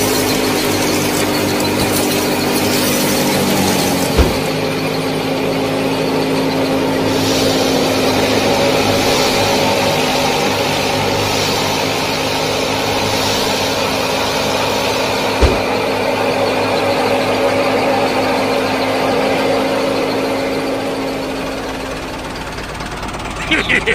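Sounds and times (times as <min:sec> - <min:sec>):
small motor humming: 0:00.0 - 0:23.3.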